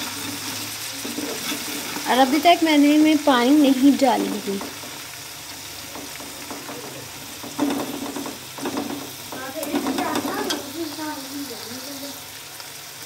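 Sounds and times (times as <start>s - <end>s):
metal spoon scraping pot: 0.0s - 2.2s
meat sizzling in pot: 0.0s - 13.0s.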